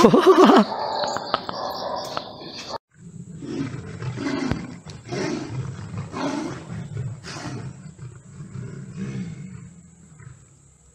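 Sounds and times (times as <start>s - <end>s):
big cat roaring: 2.9s - 10.5s.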